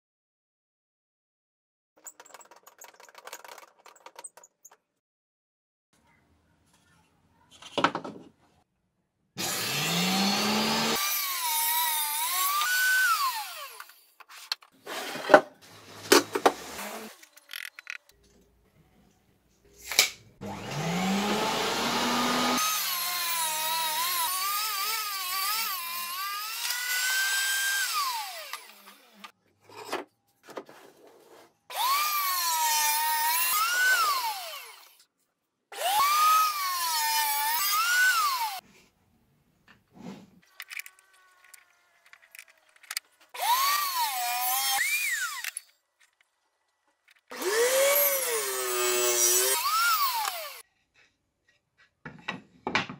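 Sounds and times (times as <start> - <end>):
table saw cutting wood: 9.4 - 14.1, 14.8 - 17.2, 20.4 - 29.3, 31.7 - 35.0, 35.7 - 38.6, 43.3 - 45.7, 47.3 - 50.6.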